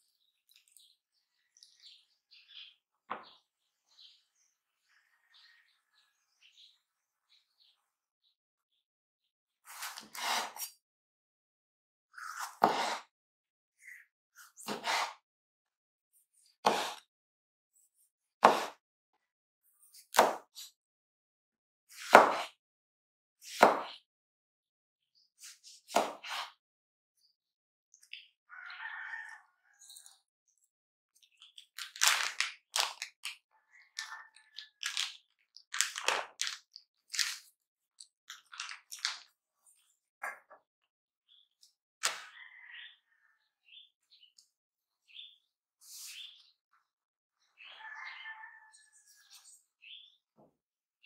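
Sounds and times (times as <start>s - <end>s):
knife slicing tomato: 9.7s - 10.8s, 12.2s - 13.1s, 14.6s - 15.2s, 16.6s - 17.1s, 18.4s - 18.8s, 21.9s - 22.6s, 23.4s - 24.0s, 25.4s - 26.6s
plastic bag crinkling: 31.8s - 33.4s, 34.8s - 37.5s, 38.3s - 39.2s.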